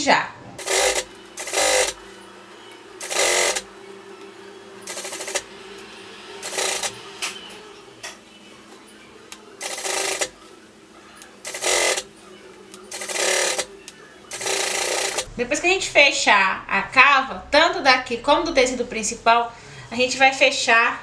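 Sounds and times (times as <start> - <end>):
sewing machine stitching: 0.6 - 2.0, 3.0 - 3.7, 4.9 - 5.5, 6.4 - 7.0, 9.6 - 10.4, 11.4 - 12.1, 12.9 - 13.7, 14.3 - 15.3.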